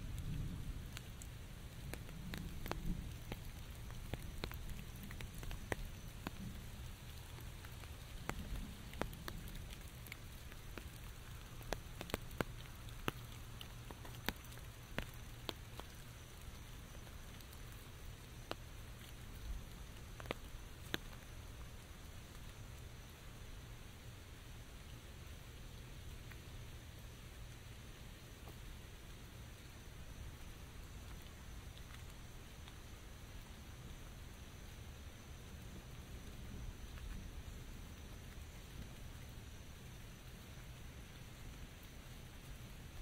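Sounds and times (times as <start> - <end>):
raindrops tapping on umbrella: 0.0 - 22.9, 28.2 - 33.0.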